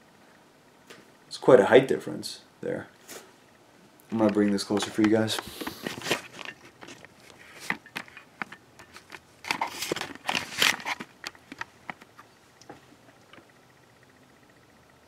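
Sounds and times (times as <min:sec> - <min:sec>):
objects being handled: 0:04.1 - 0:12.4.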